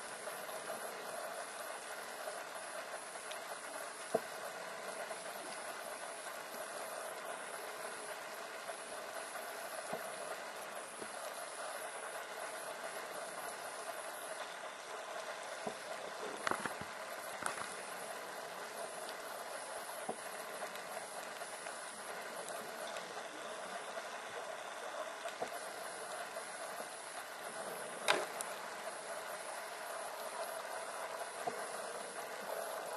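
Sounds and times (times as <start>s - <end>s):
sharp underwater clicks: 16.4s - 17.8s.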